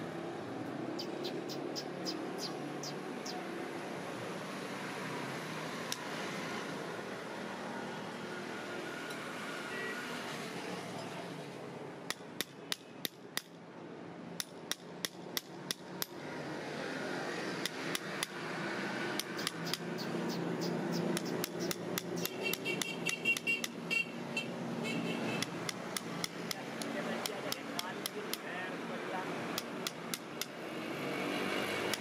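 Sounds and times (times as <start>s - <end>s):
hammer tapping steel blade: 12.1s - 13.6s, 19.2s - 23.8s, 25.4s - 28.5s, 29.6s - 30.6s.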